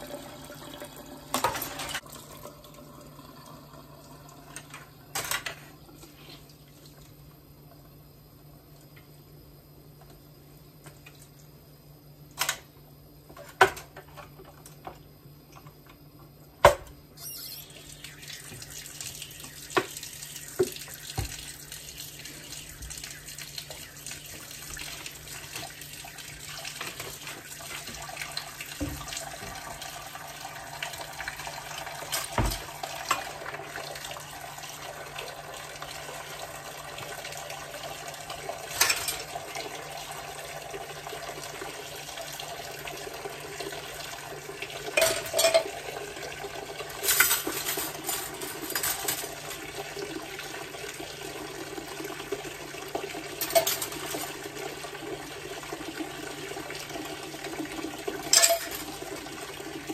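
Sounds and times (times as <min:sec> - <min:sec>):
faucet water running: 0:00.0 - 0:08.2, 0:17.2 - 0:59.9
dishes clinking in sink: 0:01.3 - 0:02.1, 0:32.0 - 0:33.3, 0:38.7 - 0:39.4, 0:44.9 - 0:45.9, 0:47.0 - 0:49.6, 0:53.3 - 0:54.5, 0:58.2 - 0:59.1.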